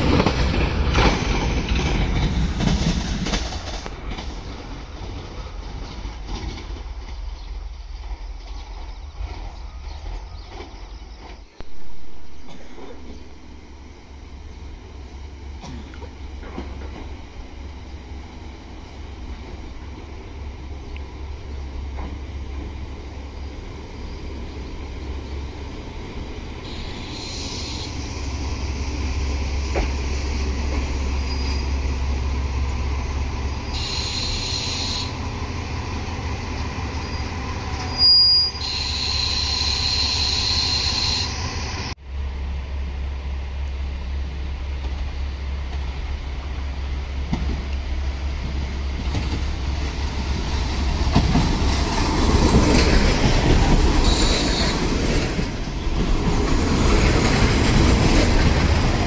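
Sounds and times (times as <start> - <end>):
diesel train approaching: 0.0 - 59.0
diesel train engine rumble: 0.0 - 59.0
train brake hisses: 26.6 - 28.3, 33.7 - 35.2, 37.1 - 41.9, 54.0 - 54.9.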